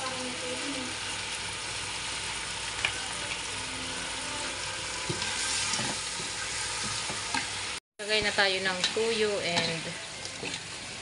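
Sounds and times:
chicken sizzling in a pan: 0:00.0 - 0:11.0.

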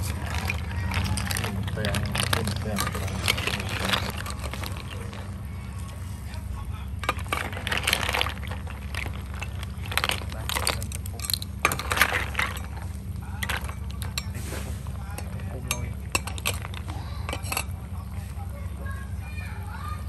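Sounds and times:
sauce bubbling: 0:00.0 - 0:14.2
steady low hum: 0:00.0 - 0:20.0.

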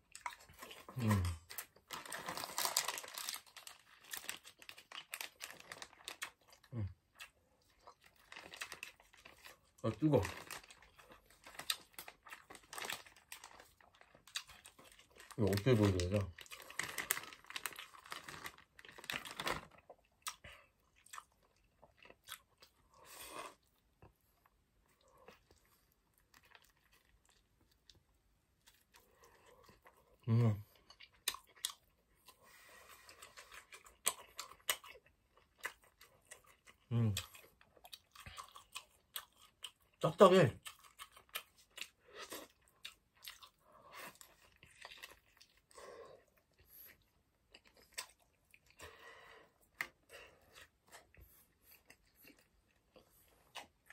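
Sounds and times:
person chewing bread: 0:00.0 - 0:53.9
plastic wrapper crinkling: 0:01.5 - 0:06.4, 0:08.0 - 0:19.8.

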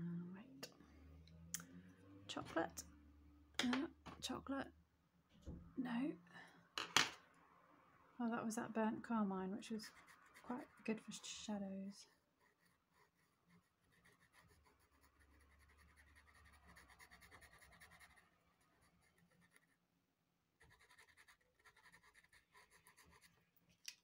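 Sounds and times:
pencil scratching on paper: 0:09.8 - 0:11.4, 0:12.0 - 0:19.8, 0:20.6 - 0:23.4.

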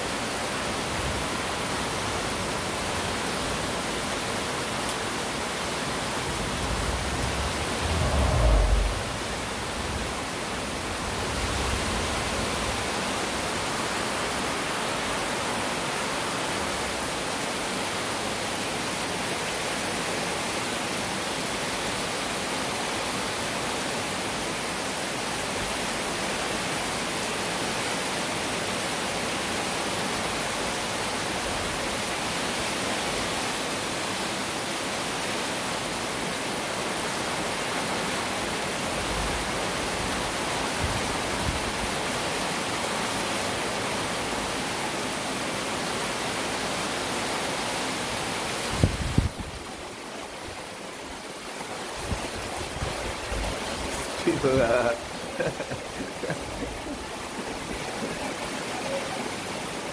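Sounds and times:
heavy rain falling: 0:00.0 - 0:59.9
low bumps: 0:06.3 - 0:10.2.

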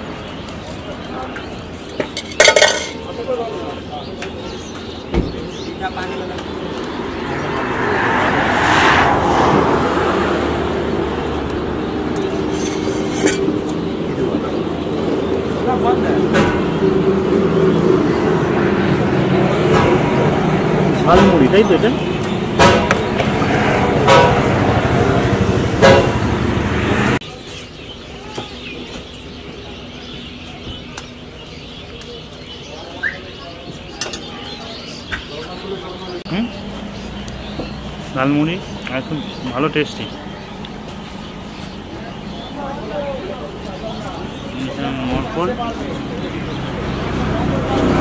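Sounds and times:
busy street noise: 0:00.0 - 0:48.0
traffic hum: 0:00.0 - 0:48.0
vehicle passing: 0:05.8 - 0:27.2, 0:36.0 - 0:48.0.

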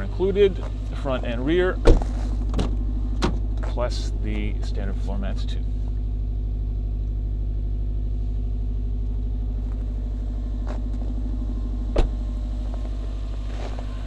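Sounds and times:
car engine idling: 0:00.0 - 0:14.0
car door shutting: 0:01.8 - 0:04.5, 0:11.8 - 0:14.0.

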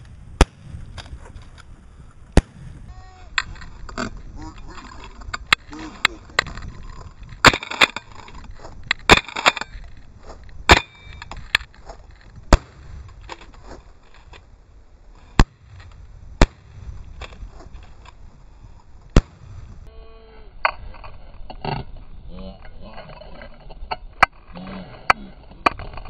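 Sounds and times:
shotgun shots: 0:00.0 - 0:00.8, 0:02.4 - 0:02.8, 0:12.5 - 0:13.0, 0:16.4 - 0:16.7.

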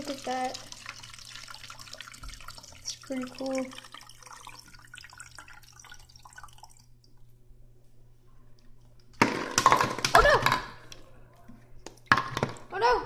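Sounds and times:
water draining between bottles: 0:00.0 - 0:07.2
water drips and trickles: 0:00.0 - 0:07.2
plastic bottles clattering over: 0:09.2 - 0:10.8.

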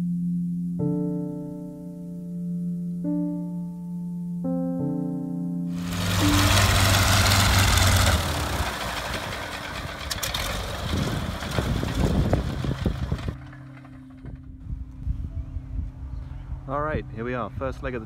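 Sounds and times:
radial engine shutting down: 0:05.8 - 0:14.4
propeller winding down: 0:05.8 - 0:14.6.

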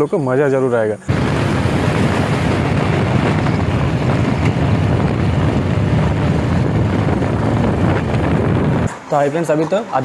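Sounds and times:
motorcycle engine running: 0:01.1 - 0:08.9
wind rushing over microphone: 0:01.1 - 0:09.5.

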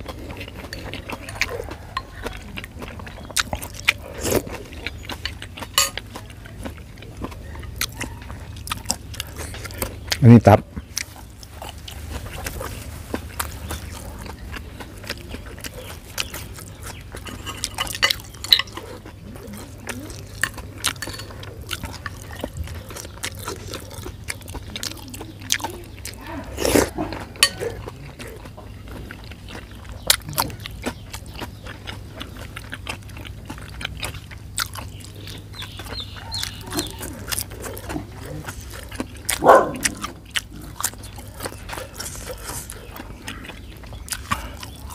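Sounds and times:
wet chewing: 0:00.0 - 0:44.9
lip-smacking: 0:13.2 - 0:44.9.

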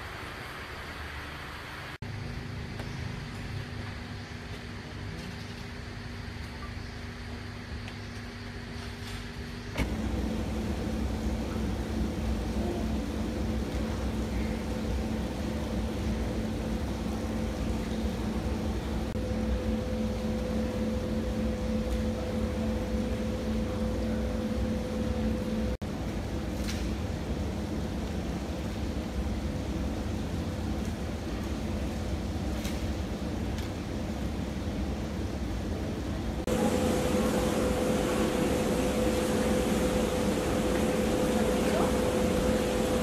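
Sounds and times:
mechanical hum: 0:00.0 - 0:43.0
higher steady tone: 0:09.8 - 0:25.8, 0:36.4 - 0:43.0.

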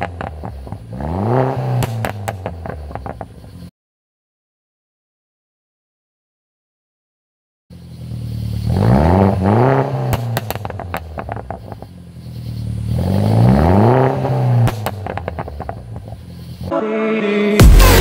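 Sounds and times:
car engine revving: 0:00.0 - 0:03.7, 0:07.7 - 0:16.7
exhaust pops and crackles: 0:00.0 - 0:03.7, 0:10.0 - 0:12.0, 0:14.3 - 0:16.4.

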